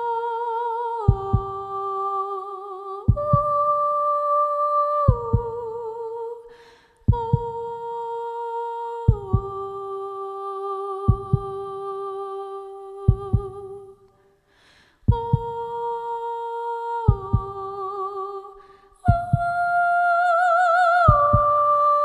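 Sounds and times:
low heartbeat-like double thump: 0:03.1 - 0:03.5, 0:07.1 - 0:07.5, 0:11.1 - 0:11.6, 0:13.1 - 0:13.6, 0:15.1 - 0:15.6, 0:19.1 - 0:19.6, 0:21.1 - 0:21.5
woman humming with vibrato: 0:15.1 - 0:22.0.

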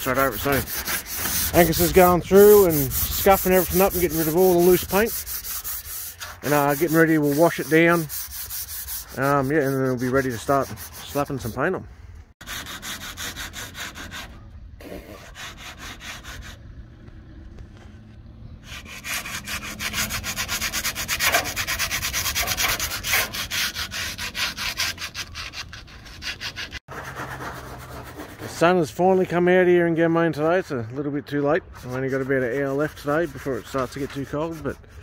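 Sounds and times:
hand sanding paint on timber: 0:00.0 - 0:11.8, 0:12.4 - 0:16.6, 0:18.6 - 0:29.2, 0:31.4 - 0:35.0.

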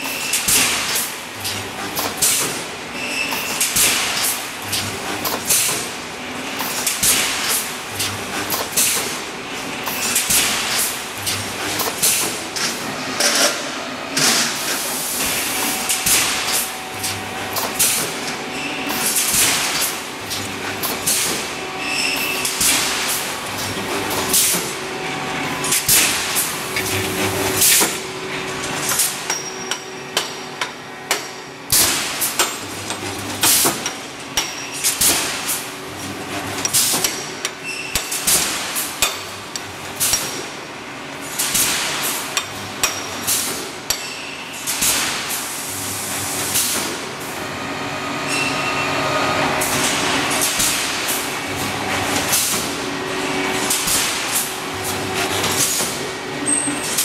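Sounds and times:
steady machine hum: 0:09.2 - 0:37.7, 0:45.5 - 0:57.0.

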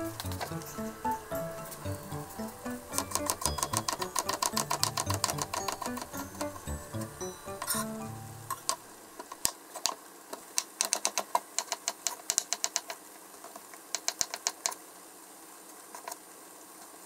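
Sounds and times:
knife tapping cutting board: 0:03.0 - 0:06.6.

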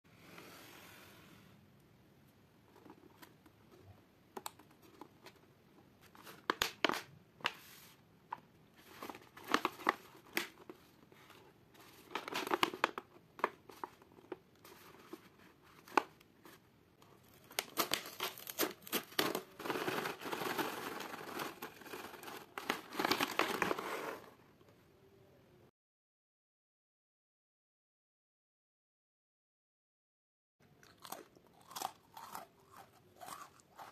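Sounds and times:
plastic pouch crinkling: 0:08.8 - 0:10.8, 0:17.2 - 0:23.9.

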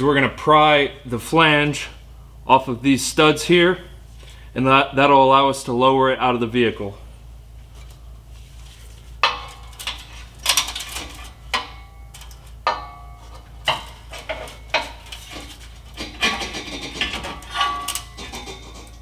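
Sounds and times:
pry bar clanking on metal: 0:09.2 - 0:19.0.

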